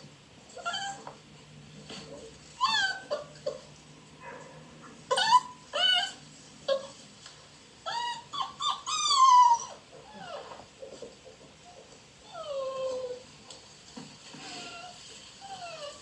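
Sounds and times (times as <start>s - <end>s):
puppies whining: 0.5s - 1.2s, 2.6s - 7.0s, 7.8s - 13.4s, 14.4s - 16.0s.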